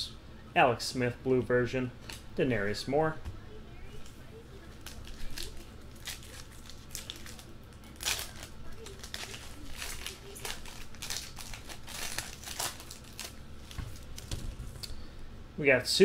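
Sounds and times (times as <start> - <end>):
foil pack tearing and crinkling: 4.6 - 14.4.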